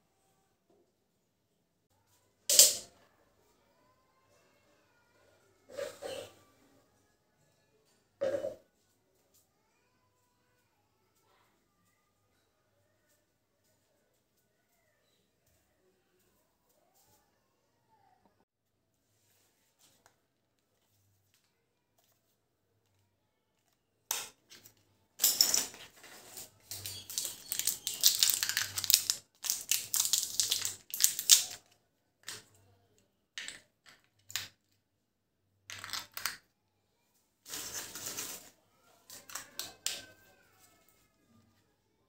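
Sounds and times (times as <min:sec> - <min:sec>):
plastic clicks and rattles: 0:26.6 - 0:32.5, 0:35.7 - 0:36.4.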